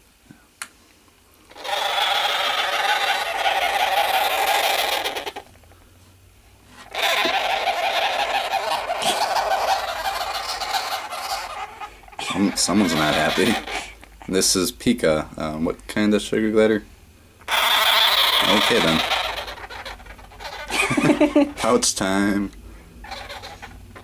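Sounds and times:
sugar glider harsh buzzing chatter: 0:01.5 - 0:05.5, 0:06.8 - 0:14.4, 0:17.4 - 0:22.4, 0:23.0 - 0:24.0.

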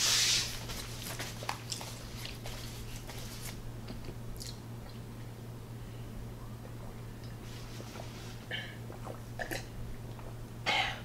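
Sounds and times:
steady low hum: 0:00.0 - 0:11.0
faint chewing: 0:03.8 - 0:05.0.

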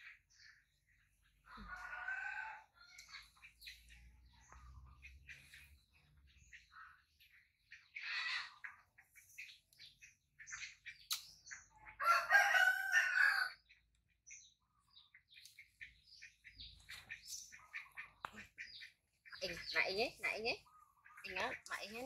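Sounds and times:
rooster crowing: 0:01.6 - 0:02.8, 0:12.0 - 0:13.6.

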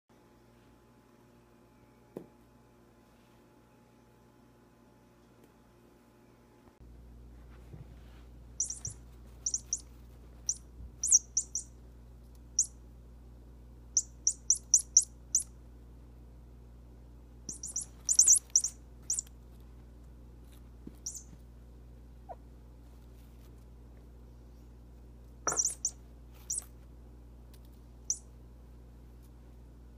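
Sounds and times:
faint low hum: 0:00.1 - 0:29.9
high-pitched chirps: 0:08.6 - 0:09.9, 0:10.5 - 0:11.7, 0:14.0 - 0:15.5, 0:17.5 - 0:19.3, 0:21.0 - 0:21.3, 0:25.5 - 0:26.6.

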